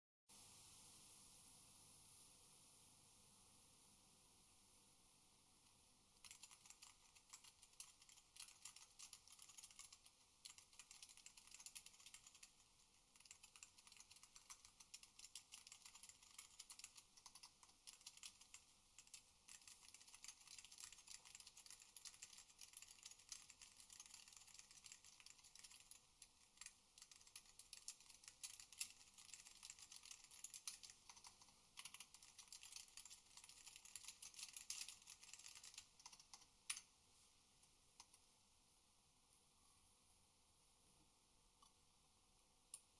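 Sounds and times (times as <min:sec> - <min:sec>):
fast typing on mechanical keyboard: 0:06.2 - 0:36.5.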